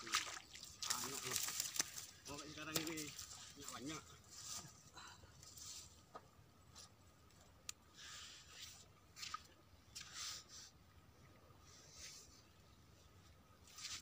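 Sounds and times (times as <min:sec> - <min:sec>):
faint soft rustles: 0:00.9 - 0:10.8.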